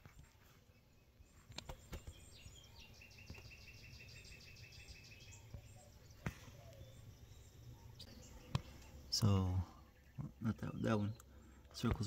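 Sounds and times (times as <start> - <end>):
chirping trill: 1.8 - 9.2.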